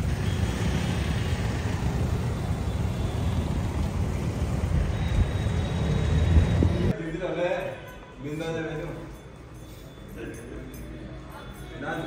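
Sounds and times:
road traffic rumble: 0.0s - 7.0s.

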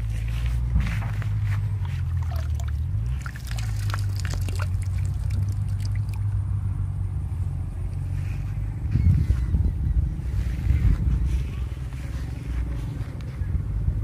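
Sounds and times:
low rumble: 0.0s - 14.0s
water trickling and dripping: 1.8s - 6.4s.

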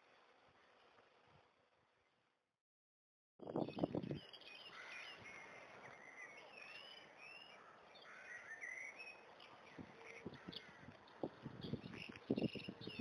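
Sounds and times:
small birds singing and chirping: 3.4s - 13.0s
faint outdoor hiss: 3.6s - 13.0s.

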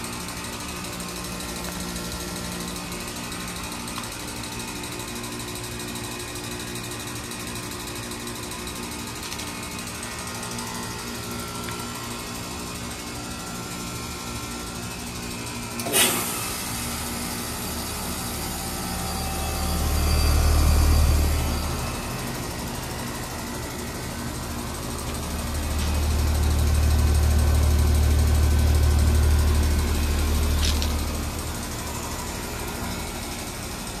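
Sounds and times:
heat pump humming: 0.0s - 34.0s
heat pump click: 15.8s - 16.4s.

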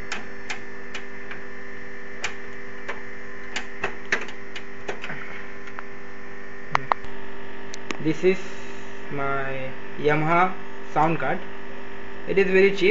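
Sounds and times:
electrical mains hum: 0.0s - 12.9s
clicks of computer parts handled: 2.2s - 5.8s.

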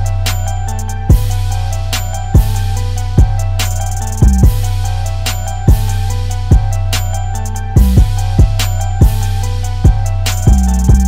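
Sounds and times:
deep sustained bass: 0.0s - 11.0s
repeating synth line: 0.0s - 11.0s
kick drum hits: 7.8s - 9.2s.

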